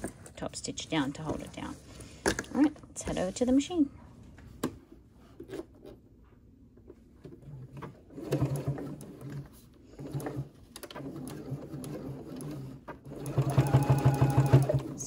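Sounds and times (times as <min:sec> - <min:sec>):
sewing machine stitching: 0:07.4 - 0:15.0.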